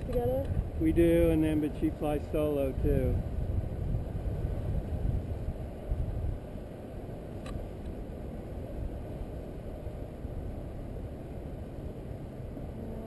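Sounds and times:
wind buffeting microphone: 0.0s - 13.0s
small click: 7.4s - 7.6s.

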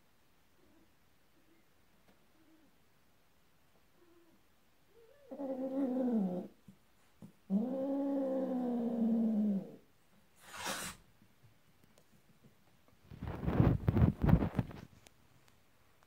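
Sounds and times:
cat hissing: 10.4s - 11.0s.

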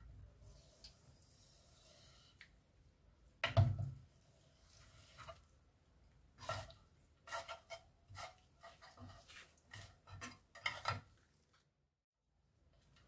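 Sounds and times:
food scraping and squelching in pan: 4.0s - 5.7s, 6.3s - 11.7s.

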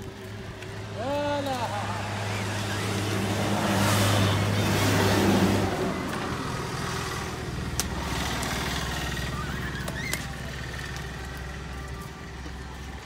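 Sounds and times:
engine idling: 5.6s - 13.0s.

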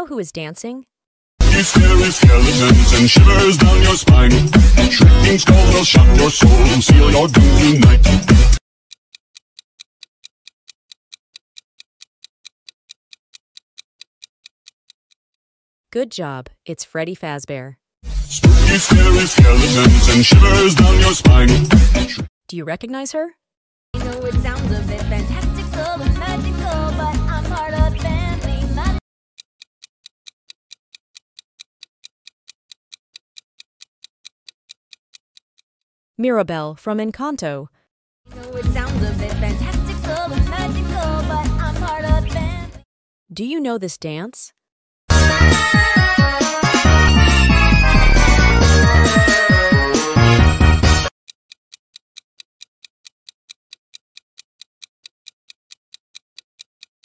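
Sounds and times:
fast clock ticking: 1.4s - 15.2s, 18.4s - 22.2s, 29.4s - 35.7s, 45.1s - 57.0s.

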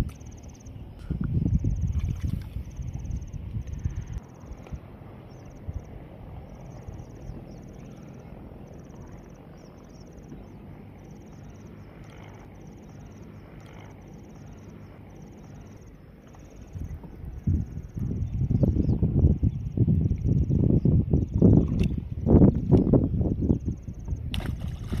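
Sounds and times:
insects chirping in trills: 0.0s - 25.0s
steady low rumble: 0.0s - 25.0s.

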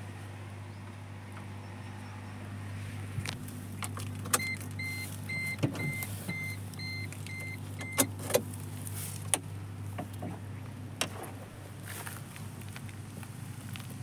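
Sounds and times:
car warning chime beeping: 4.4s - 8.1s.

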